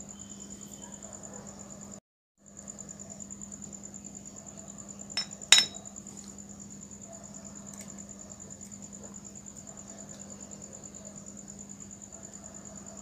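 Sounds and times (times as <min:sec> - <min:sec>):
crickets trilling: 0:00.0 - 0:13.0
glass clinking on hard surface: 0:05.2 - 0:05.8.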